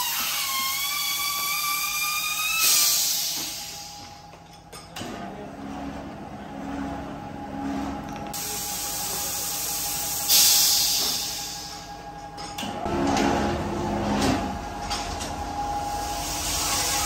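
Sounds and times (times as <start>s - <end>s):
compressed air hiss: 2.6s - 4.0s, 8.4s - 11.9s
loud blast of air: 2.6s - 4.1s, 8.4s - 11.9s, 15.8s - 17.0s
machine running hum: 3.1s - 17.0s.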